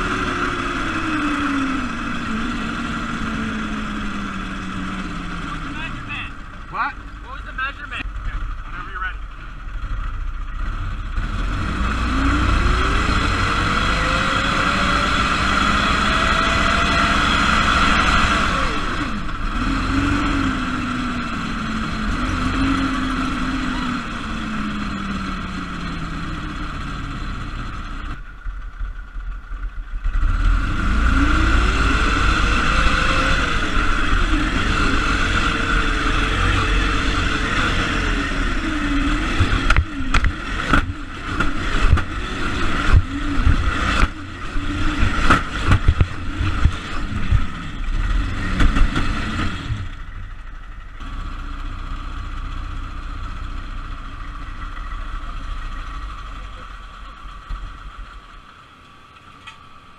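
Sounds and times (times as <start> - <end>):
buggy engine revving: 0.0 - 59.9
chassis rattling over rough ground: 0.0 - 59.9.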